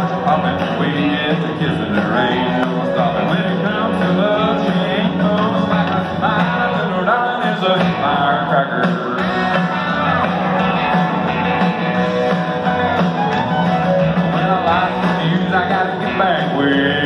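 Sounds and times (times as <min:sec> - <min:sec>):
man singing: 0:00.0 - 0:10.0, 0:14.1 - 0:17.0
electric guitars: 0:00.0 - 0:17.0
live country band: 0:00.0 - 0:17.0.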